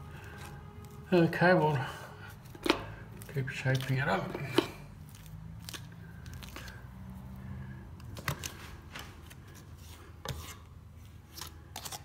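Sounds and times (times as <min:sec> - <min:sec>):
plastering tool scraping cement: 0:09.5 - 0:10.7.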